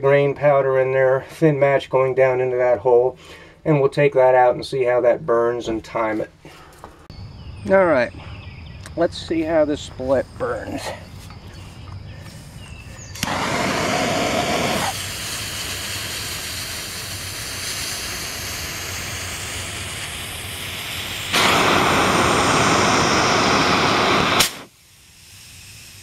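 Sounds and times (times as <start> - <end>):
fuse burning with a hiss: 12.3 - 26.0
hissing jet of flame: 13.1 - 26.0
sharp burst: 13.1 - 26.0.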